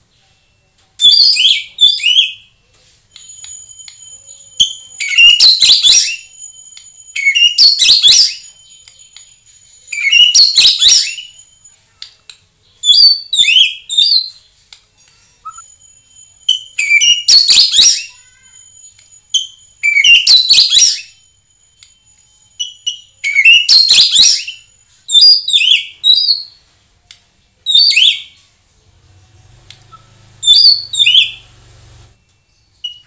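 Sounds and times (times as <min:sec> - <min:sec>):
bird singing whistled phrases: 0:04.2 - 0:11.6, 0:16.5 - 0:21.2, 0:22.6 - 0:26.6.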